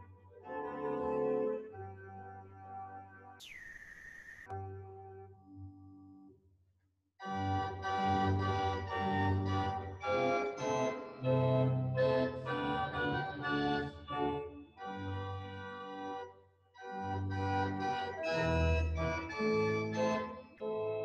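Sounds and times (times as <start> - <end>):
organ playing a hymn: 7.3 - 16.2, 16.9 - 21.0.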